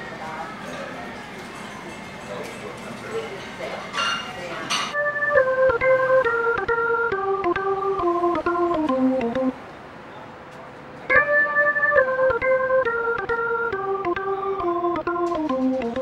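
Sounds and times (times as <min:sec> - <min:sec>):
organ-like keyboard music: 0:05.0 - 0:09.7, 0:11.1 - 0:16.0.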